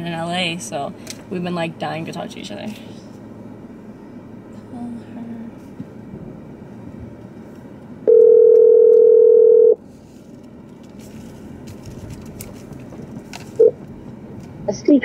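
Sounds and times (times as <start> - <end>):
phone ringback tone: 8.1 - 9.8.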